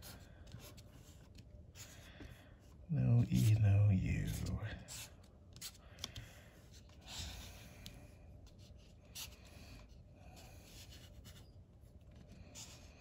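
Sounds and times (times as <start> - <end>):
marker scraping on paper: 8.4 - 13.0.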